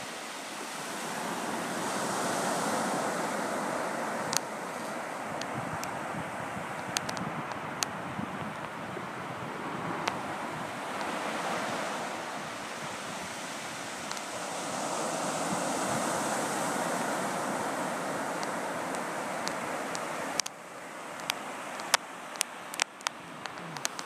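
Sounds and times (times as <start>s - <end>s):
surf washing up sandy beach: 0.0s - 24.0s
wind buffeting microphone: 0.7s - 20.5s
light clicks: 18.4s - 24.0s.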